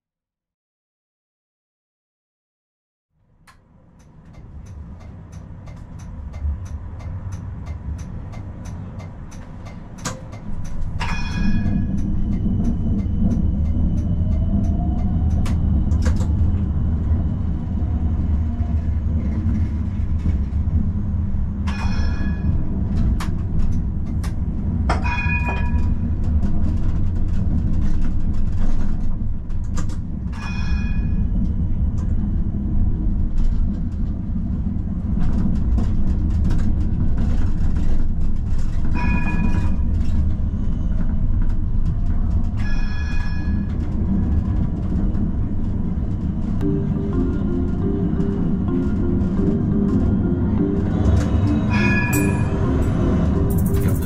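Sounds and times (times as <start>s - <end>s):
tram rumbling on rails: 3.2s - 54.0s
sharp metallic clangs: 10.0s - 12.0s, 51.7s - 52.9s.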